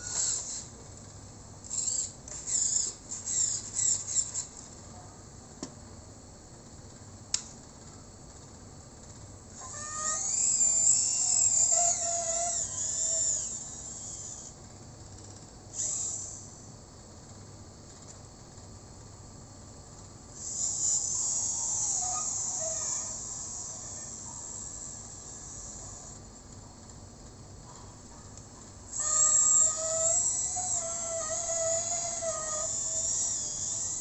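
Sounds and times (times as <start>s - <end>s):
small electric motor whining: 0.0s - 4.7s, 9.5s - 14.6s, 15.7s - 16.7s, 20.3s - 26.3s, 28.8s - 34.0s.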